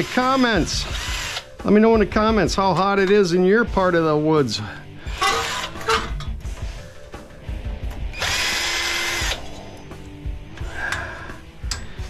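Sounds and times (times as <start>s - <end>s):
cordless drill running: 0.0s - 1.5s, 5.1s - 6.0s, 8.1s - 9.4s.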